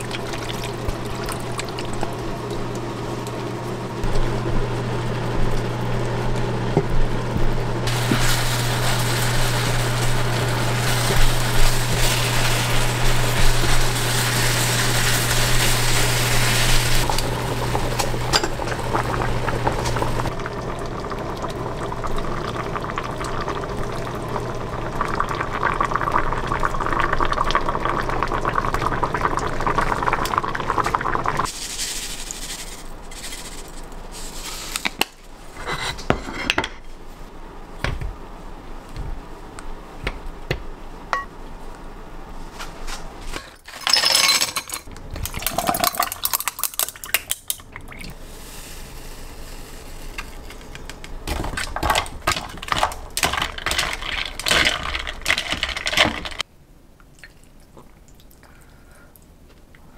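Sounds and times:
sauce bubbling and sizzling: 0.0 - 32.7, 48.1 - 56.5.

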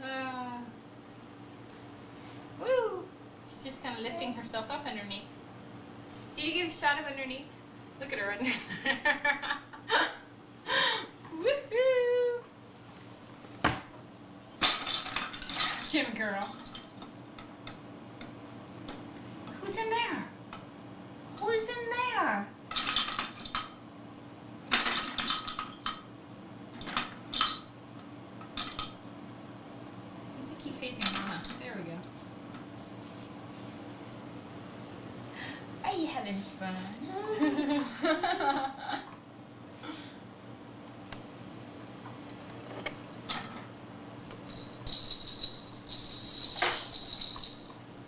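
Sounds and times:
toy rattle jingling: 44.4 - 47.8.

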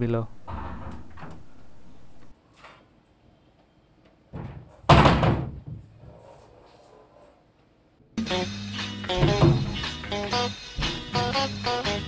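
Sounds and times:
wooden door banging shut: 0.4 - 1.7, 4.4 - 5.8, 9.1 - 9.8.

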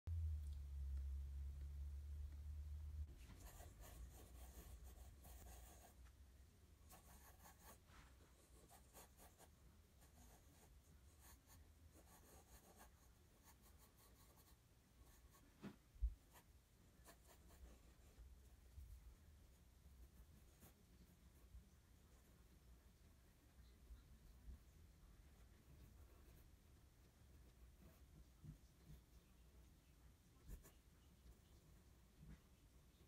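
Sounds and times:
pencil scratching on paper: 3.2 - 6.0, 6.8 - 15.5, 16.2 - 18.2, 20.0 - 21.5, 30.4 - 30.8.

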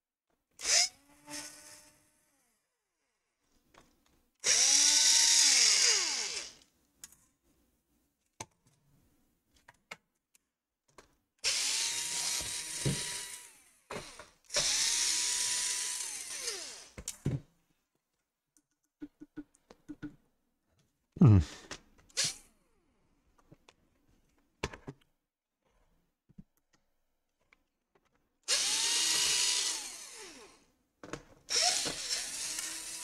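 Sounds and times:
cordless drill motor whining: 0.6 - 2.4, 4.4 - 6.6, 11.4 - 17.0, 28.5 - 30.6, 31.5 - 33.0.

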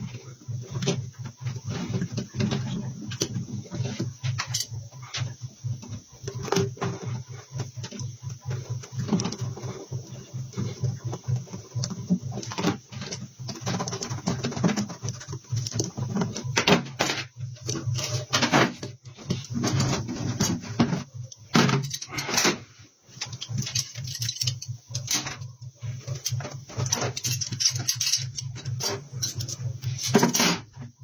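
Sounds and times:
roller pressed over rubber: 0.0 - 31.0
hand tools knocking and scraping: 26.0 - 31.0.

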